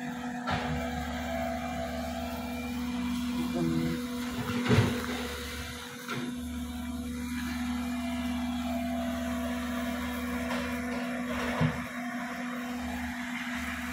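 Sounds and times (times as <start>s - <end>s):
excavator diesel engine running: 0.0s - 13.9s
thump: 4.5s - 5.2s, 11.4s - 11.9s.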